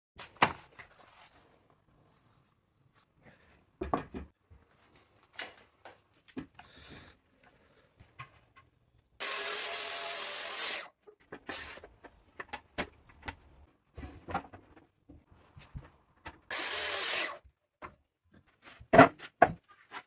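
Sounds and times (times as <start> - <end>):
track saw cutting plywood: 9.2 - 10.9, 16.5 - 17.4
knocks and sliding of boards: 17.8 - 20.0.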